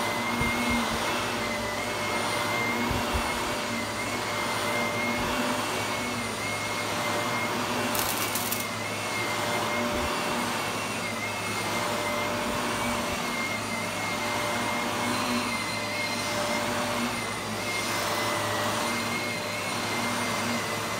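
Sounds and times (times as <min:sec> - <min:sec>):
vacuum cleaner motor whine: 0:00.0 - 0:20.9
brief crackle: 0:08.0 - 0:08.7.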